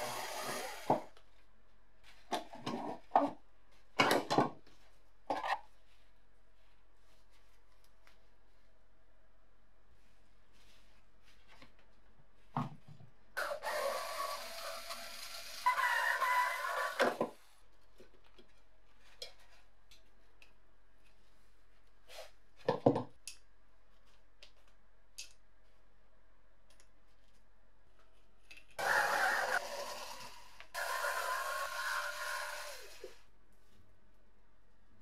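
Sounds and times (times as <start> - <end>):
cordless drill motor whining: 28.8 - 33.2.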